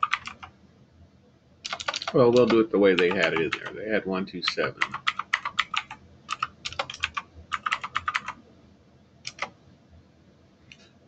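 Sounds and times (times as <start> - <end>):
typing on computer keyboard: 0.0 - 0.5, 1.6 - 3.8, 4.8 - 8.4, 9.3 - 9.6.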